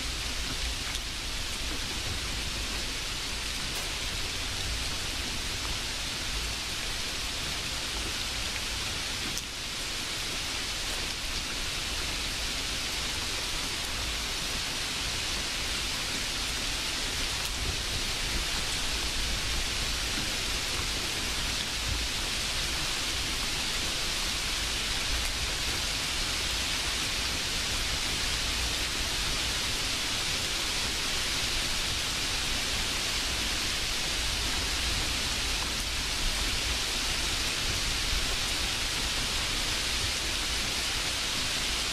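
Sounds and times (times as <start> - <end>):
steady hiss: 0.0 - 41.9.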